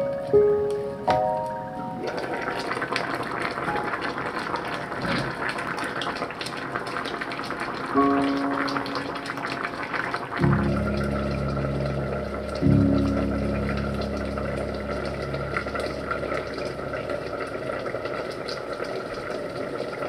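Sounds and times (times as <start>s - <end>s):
soft background music: 0.0s - 2.8s, 3.6s - 4.7s, 7.8s - 17.5s
stew bubbling in a pot: 2.0s - 20.0s.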